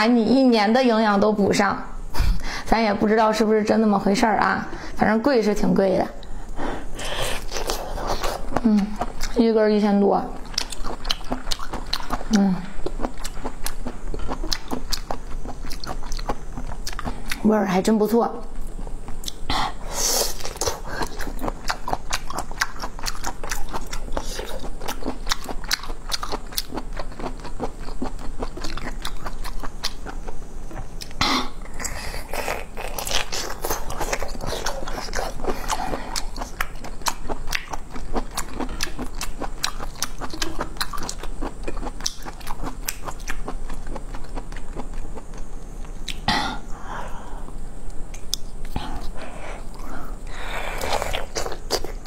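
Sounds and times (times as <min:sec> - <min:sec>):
wet crunchy chewing: 0:07.0 - 0:09.4, 0:10.3 - 0:17.4, 0:20.1 - 0:46.3, 0:48.2 - 0:52.0.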